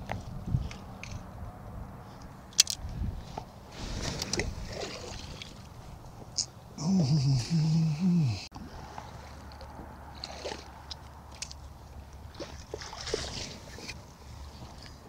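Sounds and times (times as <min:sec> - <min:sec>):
fishing tackle clicks and taps: 0:02.5 - 0:02.8, 0:10.8 - 0:11.7
man's voice: 0:06.8 - 0:08.5.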